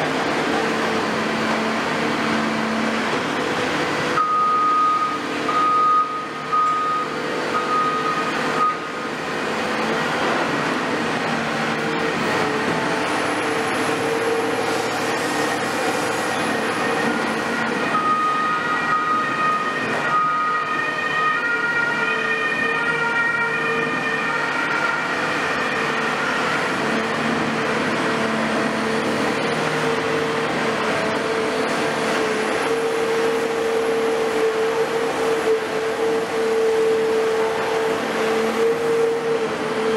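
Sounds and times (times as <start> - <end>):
excavator engine and hydraulics drone: 0.0 - 39.9.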